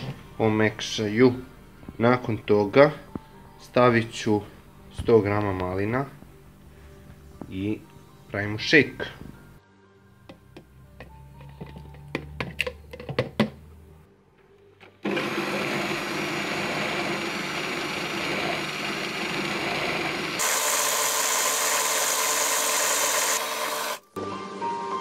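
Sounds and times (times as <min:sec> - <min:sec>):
blender running: 0:15.0 - 0:24.2.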